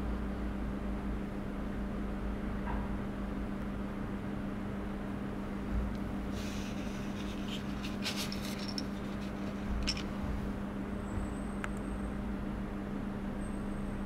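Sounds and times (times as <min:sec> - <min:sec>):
steady hum: 0:03.2 - 0:11.1
cardboard and plastic rustling: 0:06.4 - 0:10.2.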